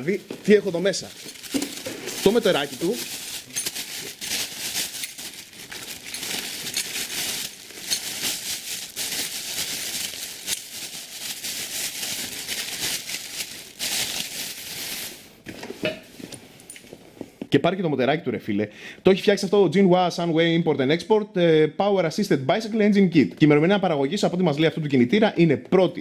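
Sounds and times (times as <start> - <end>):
plastic bag crinkling: 0.0 - 15.4.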